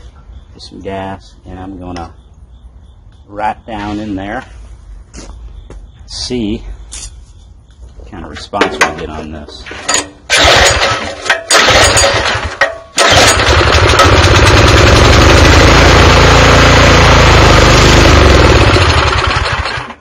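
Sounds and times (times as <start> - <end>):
recoil starter pulls: 9.9 - 20.0
small engine running: 10.3 - 20.0.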